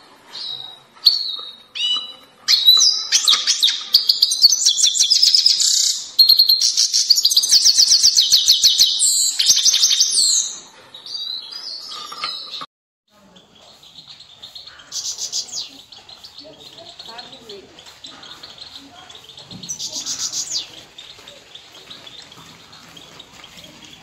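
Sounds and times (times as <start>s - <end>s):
finch singing: 13.2s - 24.0s.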